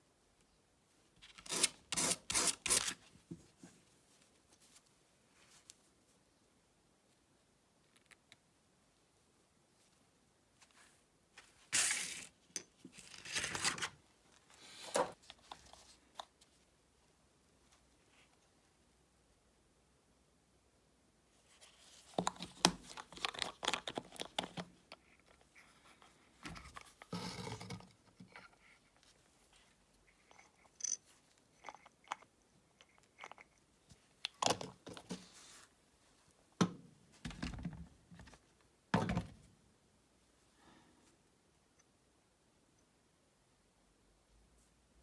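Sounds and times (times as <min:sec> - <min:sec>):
rustling: 0:03.0 - 0:06.4.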